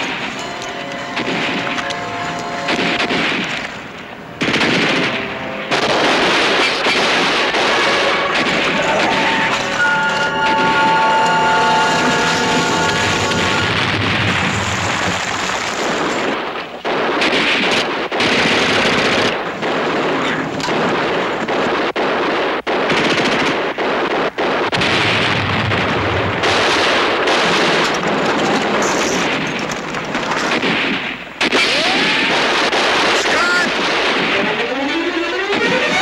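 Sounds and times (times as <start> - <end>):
rifle shots: 0.0 - 34.8
machine-gun bursts: 4.4 - 10.3, 14.3 - 25.0.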